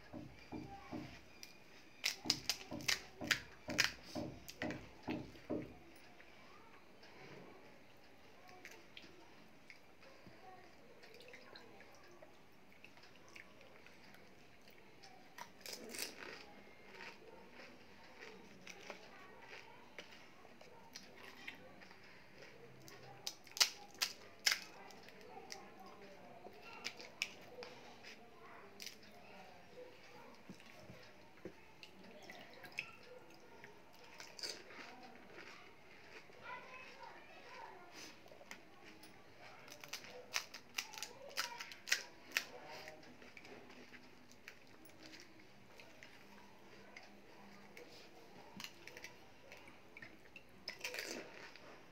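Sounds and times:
fried shell cracking: 1.9s - 4.0s, 23.3s - 24.8s, 39.7s - 42.5s
chewing and mouth sounds: 11.0s - 29.2s, 29.8s - 51.9s.

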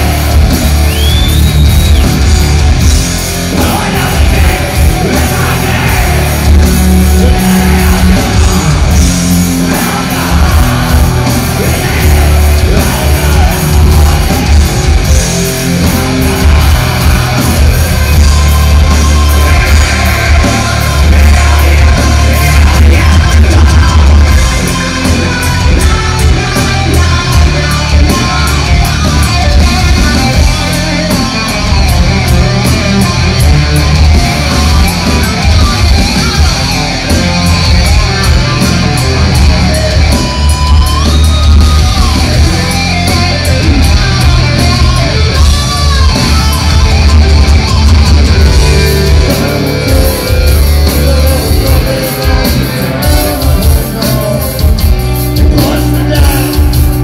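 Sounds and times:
heavy metal band playing live: 0.0s - 57.0s
person singing: 3.5s - 31.6s, 48.6s - 57.0s.

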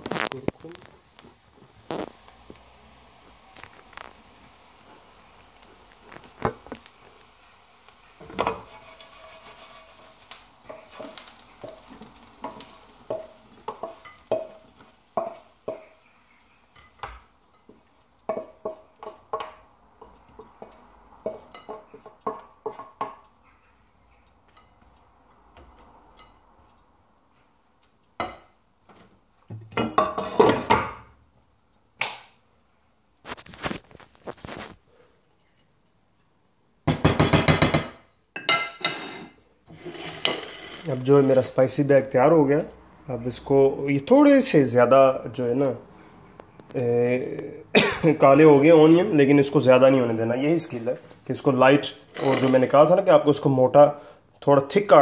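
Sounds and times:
frying pan clinks and scrapes: 8.2s - 14.6s, 36.9s - 41.5s, 51.9s - 52.8s.

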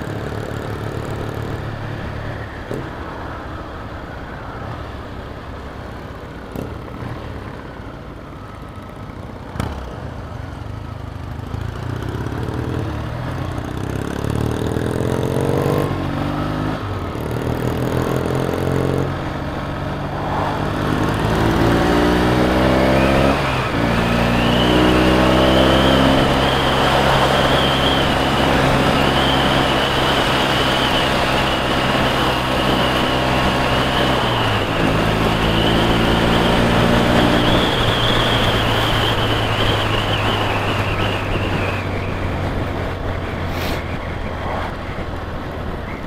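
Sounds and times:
road and wind noise: 0.0s - 46.0s
motorcycle engine accelerating: 9.4s - 46.0s.

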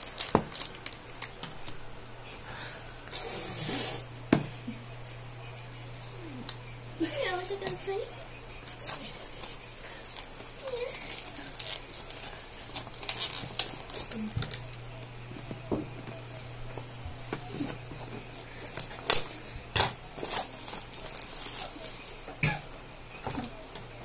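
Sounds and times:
plastic wrap crinkling: 0.0s - 1.8s, 8.6s - 22.3s.

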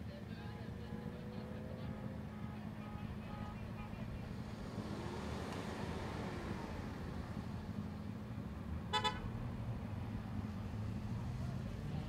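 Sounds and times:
vehicle horn toots: 8.9s - 9.3s.

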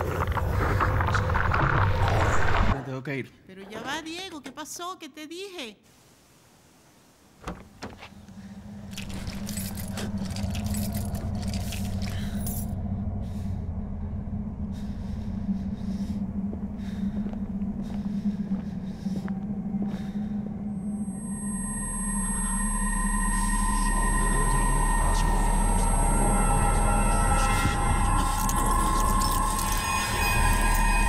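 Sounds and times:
steady low hum: 5.9s - 31.0s
keys and small parts rattling: 8.8s - 12.8s, 28.0s - 31.0s.

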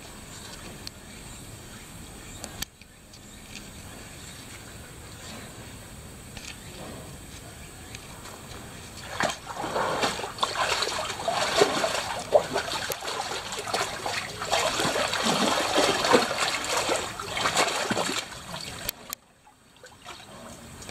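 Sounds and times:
tiger splashing in water: 9.0s - 20.9s.

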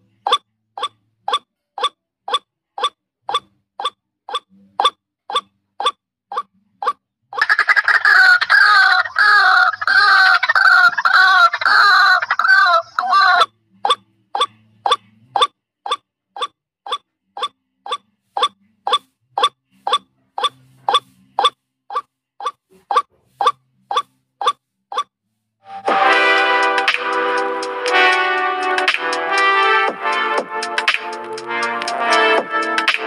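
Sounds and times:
waterhen calls: 7.4s - 13.5s.

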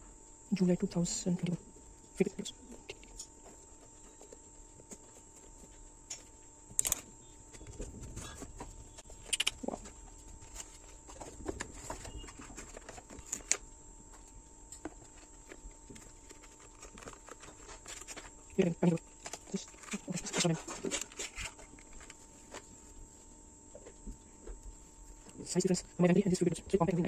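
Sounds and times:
cardboard and paper rustling: 6.8s - 25.8s.

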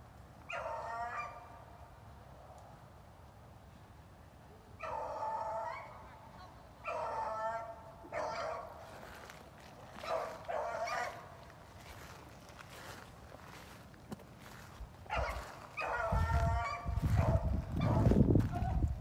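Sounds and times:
dog baying: 15.1s - 18.9s.

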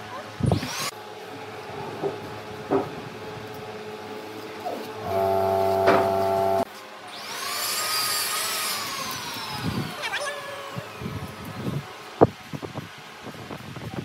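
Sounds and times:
steady motor hum: 3.2s - 6.7s
machine whine: 5.0s - 6.7s.

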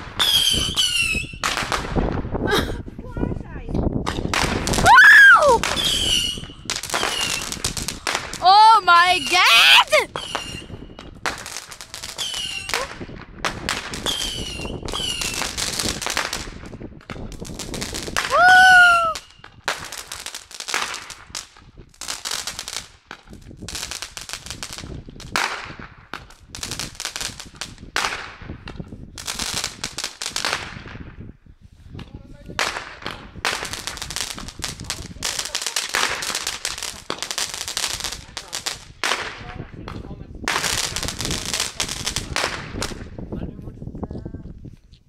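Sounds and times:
fireworks bangs and crackles: 0.0s - 44.7s
shrill whistling firework: 0.1s - 1.5s, 4.1s - 7.8s, 9.2s - 11.2s, 12.1s - 13.1s, 14.0s - 15.5s, 18.0s - 19.6s.

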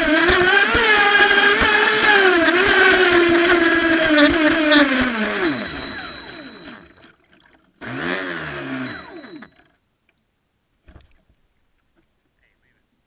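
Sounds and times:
electric motor whine: 0.0s - 7.2s, 7.8s - 9.7s.

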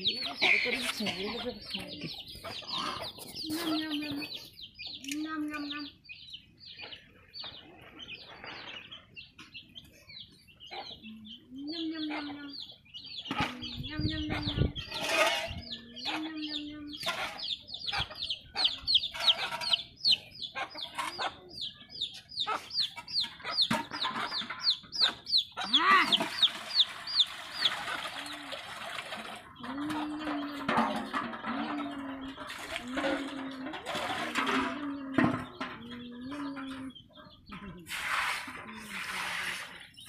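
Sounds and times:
chicks peeping: 0.0s - 40.0s
hen clucking: 0.0s - 40.0s
short scraping noise: 37.9s - 39.8s.

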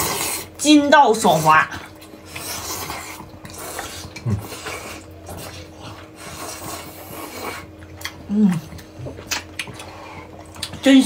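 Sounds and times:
people slurping noodles: 0.0s - 0.6s, 1.3s - 10.6s
person humming: 8.3s - 8.8s.

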